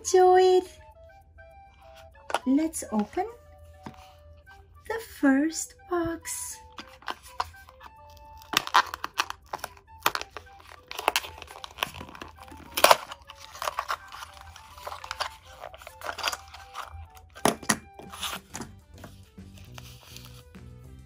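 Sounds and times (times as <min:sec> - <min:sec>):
quiet background music: 0:00.0 - 0:21.0
paper crinkling: 0:06.6 - 0:20.6.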